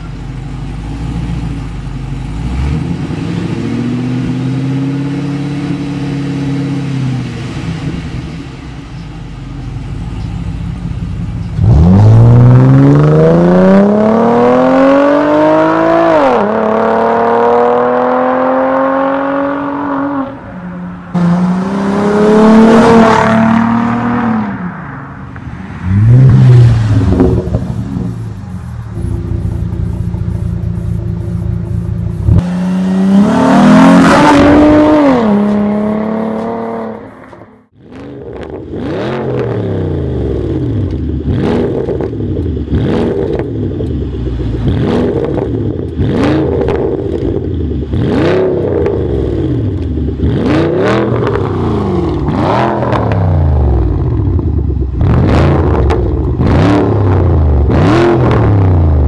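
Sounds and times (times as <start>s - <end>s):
car engine idling: 0.0s - 2.4s, 8.2s - 11.8s, 26.8s - 32.4s
car engine accelerating hard: 11.4s - 20.4s, 21.1s - 24.6s, 25.8s - 59.0s
engine revving: 11.6s - 20.4s, 21.1s - 24.6s, 25.8s - 59.0s.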